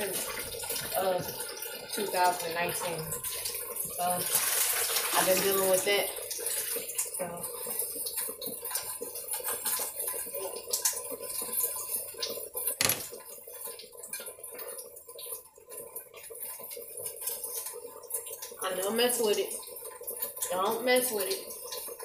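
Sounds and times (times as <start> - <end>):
sharp knock: 12.8 - 13.1.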